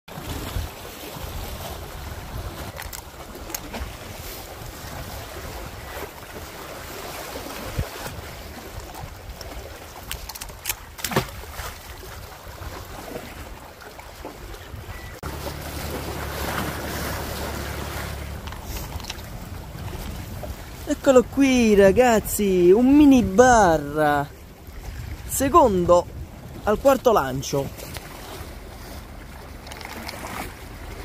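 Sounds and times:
small waves washing against rocks: 0.1 - 31.0
wind on microphone: 15.8 - 26.7.

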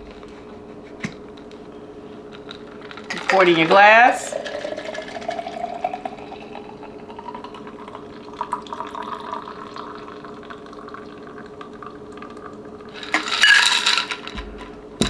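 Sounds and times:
liquid trickling into a glass: 3.0 - 13.0.

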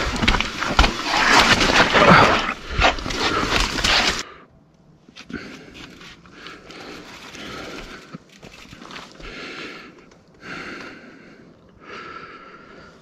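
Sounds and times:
person breathing hard: 5.2 - 8.2, 9.0 - 13.0.

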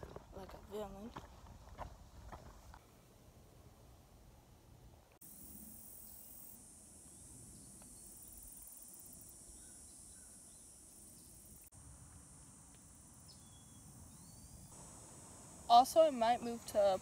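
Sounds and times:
faint insect drone: 0.0 - 17.0.

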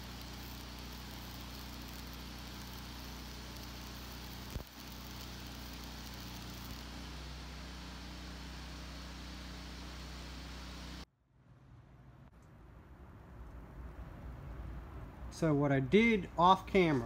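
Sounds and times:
welder engine running: 0.0 - 11.1
welding arc hissing and crackling: 0.0 - 11.1.

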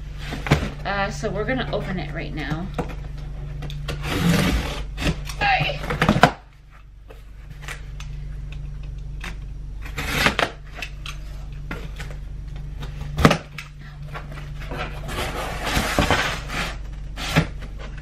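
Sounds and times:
steady low hum: 0.0 - 18.0
cardboard scraping and clicking: 14.2 - 18.0.

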